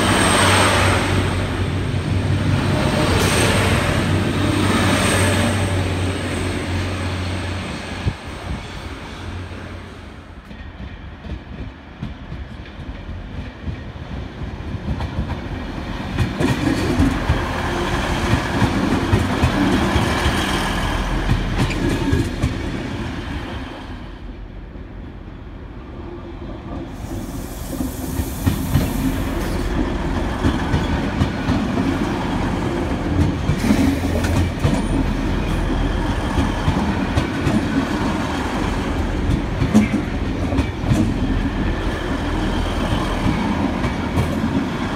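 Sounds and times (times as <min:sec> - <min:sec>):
train engines rumbling: 0:00.0 - 0:44.9
train wheels clacking over rail joints: 0:27.8 - 0:44.9.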